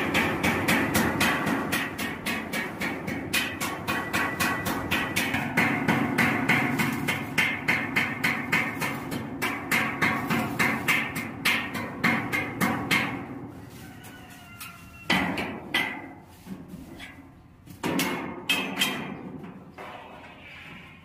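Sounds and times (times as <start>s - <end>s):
hammer striking steel hull: 0.0s - 13.3s.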